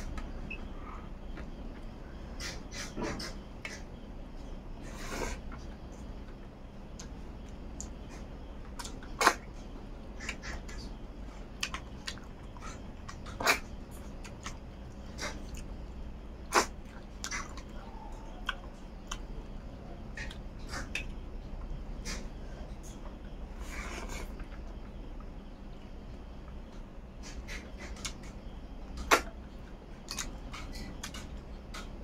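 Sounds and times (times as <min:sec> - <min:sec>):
faint steady hum: 0:00.0 - 0:32.0
mouth chewing and smacking: 0:05.6 - 0:09.6, 0:11.5 - 0:23.4, 0:27.2 - 0:32.0.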